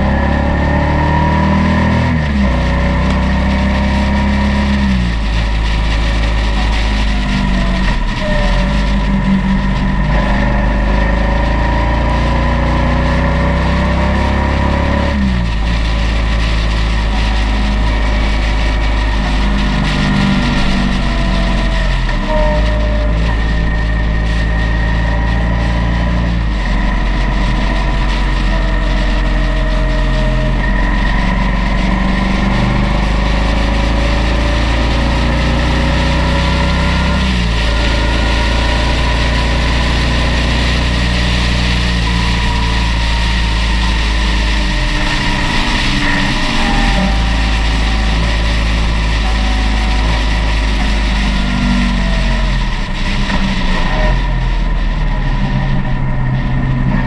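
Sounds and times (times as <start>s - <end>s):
motorcycle engine running: 0.0s - 57.0s
wind and tyre noise: 0.0s - 57.0s.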